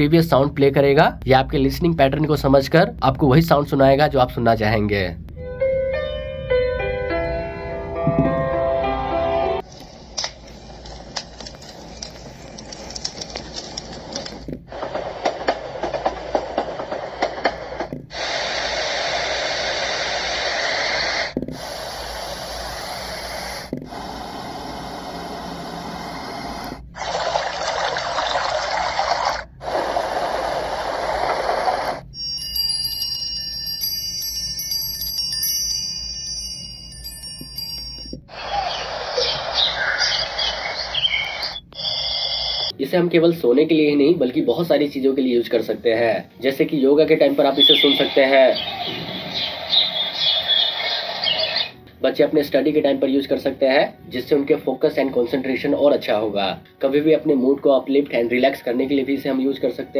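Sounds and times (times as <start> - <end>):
wind chime ringing: 32.1 - 38.4.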